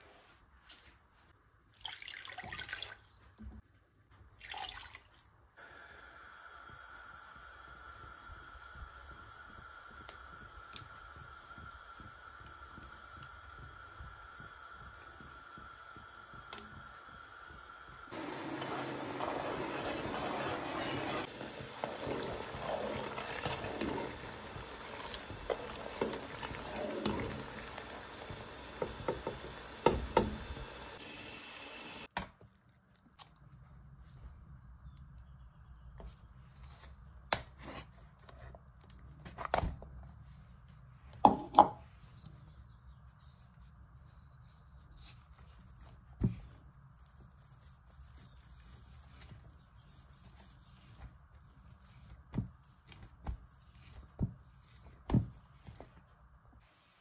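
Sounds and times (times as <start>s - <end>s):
ladle stirring in metal pot: 18.1s - 30.9s.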